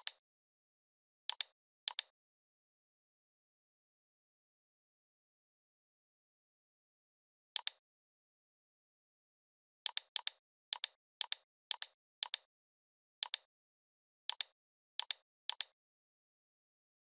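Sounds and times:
computer mouse button clicking: 13.2 - 13.5, 14.3 - 15.8.

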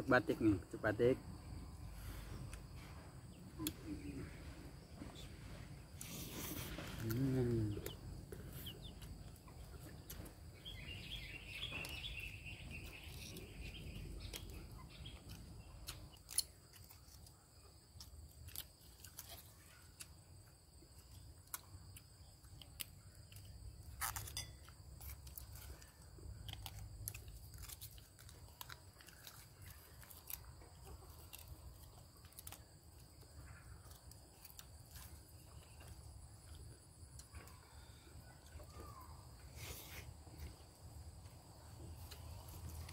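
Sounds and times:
person chewing: 18.0 - 20.1, 20.9 - 37.6.

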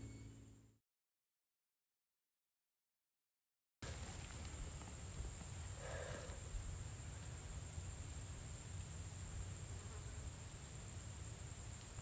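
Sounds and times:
thin high tone: 0.0 - 0.6
even hiss: 3.9 - 12.0.

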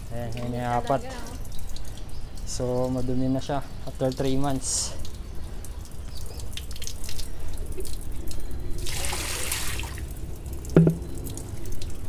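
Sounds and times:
water dripping and splashing: 0.0 - 12.0
water rushing: 8.8 - 11.8.

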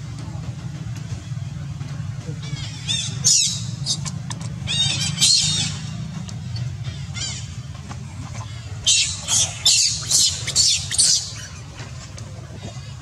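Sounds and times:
baby monkey screaming: 8.8 - 11.6.

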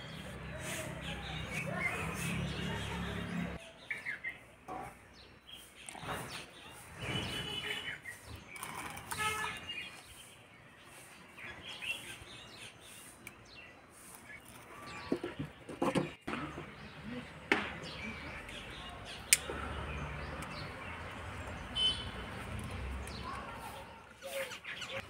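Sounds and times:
birds chirping: 0.0 - 25.0
firewood sticks knocking and scraping: 14.2 - 18.0.

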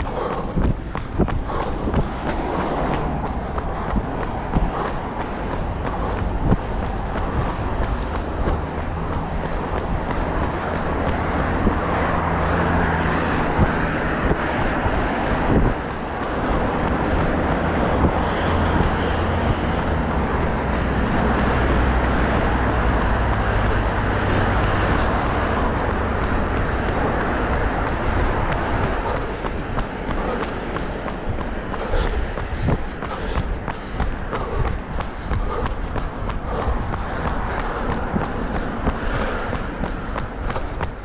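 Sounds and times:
road and tyre noise: 0.0 - 41.0
vehicle engine humming: 0.0 - 41.0.

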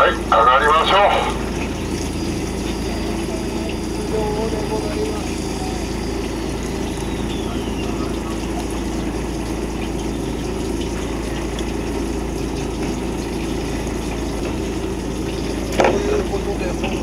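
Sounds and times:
boat engine running: 0.0 - 17.0
water rushing: 0.0 - 17.0.

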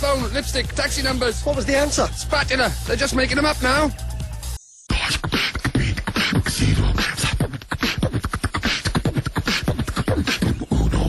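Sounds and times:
person beatboxing: 4.9 - 11.0.

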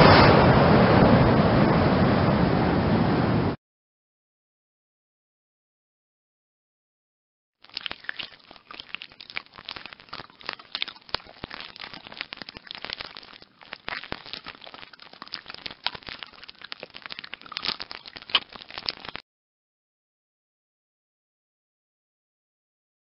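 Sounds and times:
rapid crackling and clicking: 7.6 - 19.2.

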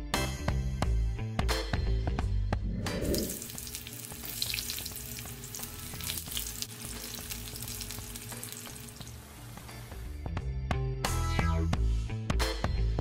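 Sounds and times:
food sizzling in hot oil: 3.0 - 10.0.

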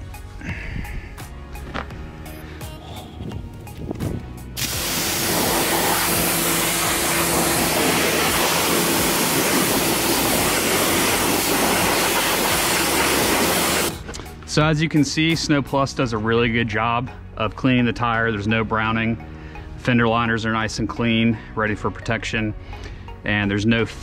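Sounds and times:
pressure washer spray hissing: 4.6 - 13.9.

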